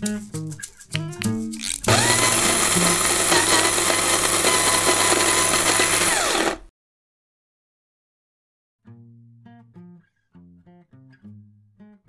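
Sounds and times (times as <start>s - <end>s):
plucked guitar notes: 0.0s - 2.0s, 8.9s - 12.0s
electric coffee grinder whine: 1.6s - 6.7s.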